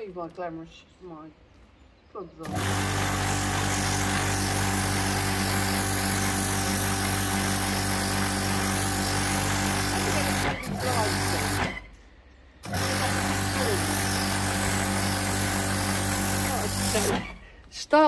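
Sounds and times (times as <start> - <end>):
pressure washer motor hum: 2.4 - 12.0, 12.6 - 17.7
water jet hissing on concrete: 2.5 - 11.7, 12.7 - 17.4.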